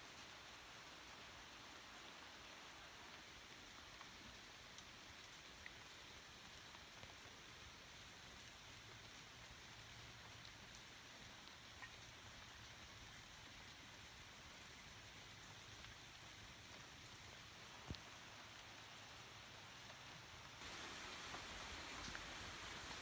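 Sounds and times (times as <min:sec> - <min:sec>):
light rain hissing: 0:00.0 - 0:23.0
small ticks: 0:11.4 - 0:12.5.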